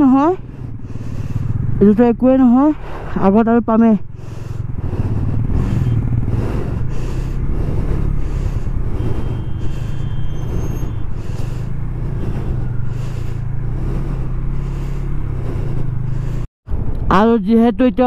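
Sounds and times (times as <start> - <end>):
motorcycle engine running: 0.0 - 16.5
wind and road noise: 0.0 - 18.0.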